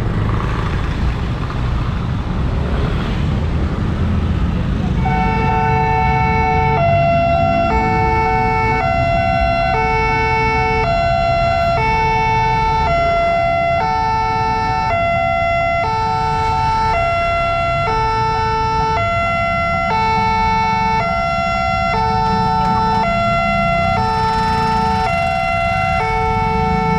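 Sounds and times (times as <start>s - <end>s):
passing motorbikes and cars rumble: 0.0s - 26.9s
level crossing two-tone alarm: 5.0s - 26.9s.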